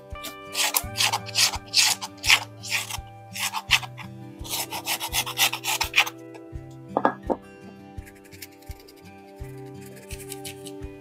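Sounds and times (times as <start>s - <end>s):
stone pestle grinding powder: 0.2s - 6.2s.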